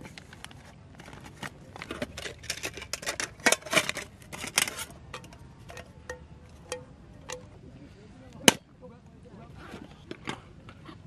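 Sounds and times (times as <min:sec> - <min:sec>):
metal cookware rattling: 0:01.8 - 0:07.4.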